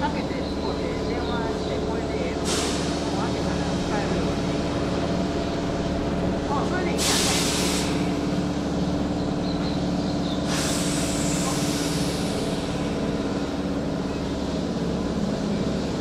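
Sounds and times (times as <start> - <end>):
train equipment humming: 0.0 - 16.0
air hiss: 10.4 - 12.6.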